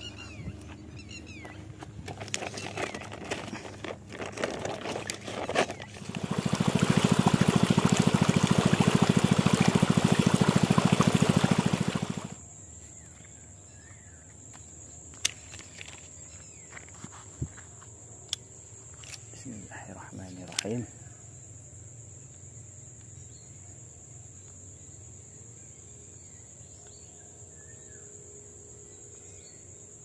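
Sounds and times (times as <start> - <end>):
plastic bag rustling: 2.0 - 7.8
water gushing from hose: 5.0 - 12.4.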